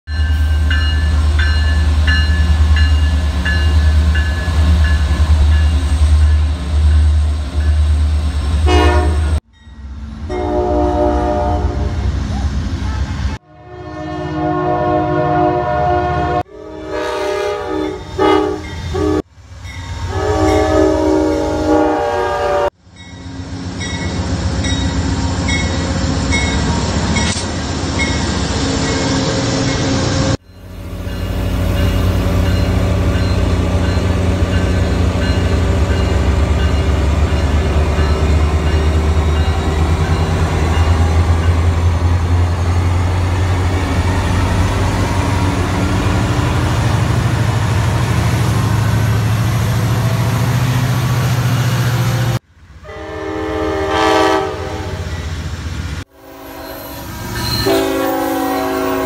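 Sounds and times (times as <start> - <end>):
crossing bell ringing: 0.1 - 8.1, 8.7 - 11.5, 17.7 - 21.6, 22.9 - 27.4, 28.0 - 47.0, 56.2 - 59.0
diesel locomotive rumbling: 0.1 - 59.0
train horns blowing chords: 8.6 - 9.4, 10.2 - 12.1, 13.4 - 19.3, 20.0 - 22.8, 52.2 - 55.2, 56.1 - 59.0.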